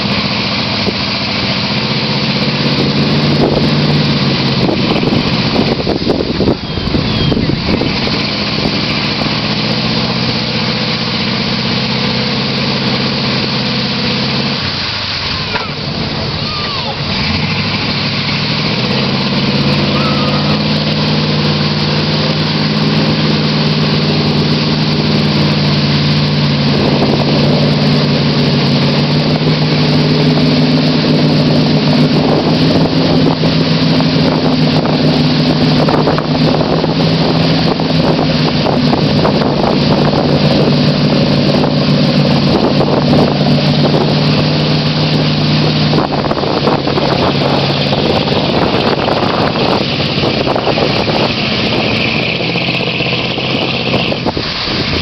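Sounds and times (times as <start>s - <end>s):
tires churning through mud: 0.0s - 55.0s
truck engine at high revs: 0.0s - 55.0s.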